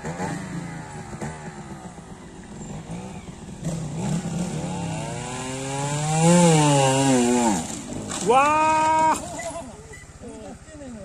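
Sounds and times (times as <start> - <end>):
motorcycle engine revving: 0.0 - 10.7.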